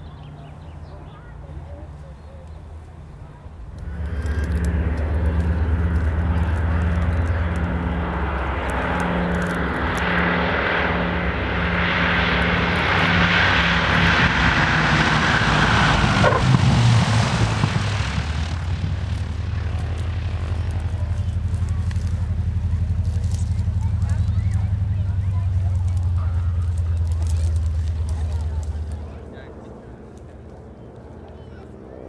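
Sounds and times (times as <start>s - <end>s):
propeller plane passing: 0.0s - 32.0s.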